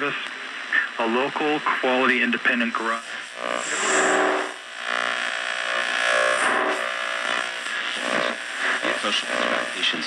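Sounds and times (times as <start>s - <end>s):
music from radio speaker: 3.0s - 10.0s.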